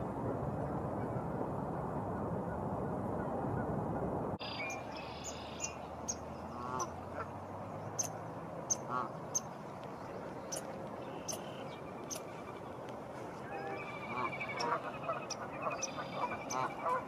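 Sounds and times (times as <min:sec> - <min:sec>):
wind on microphone: 0:00.0 - 0:17.0
geese calling: 0:04.4 - 0:07.4, 0:08.0 - 0:09.6, 0:10.5 - 0:17.0
small birds chirping: 0:04.4 - 0:17.0.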